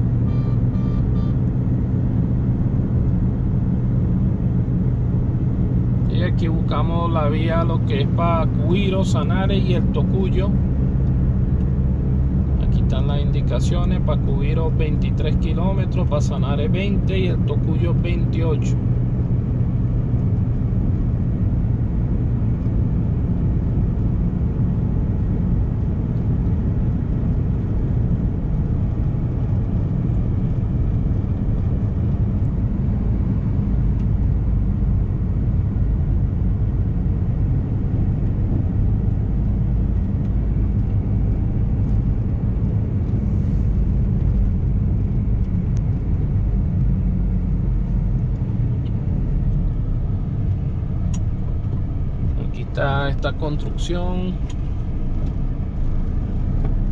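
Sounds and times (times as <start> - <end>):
car engine rumble: 0.0 - 56.9
tyre road noise: 0.0 - 56.9.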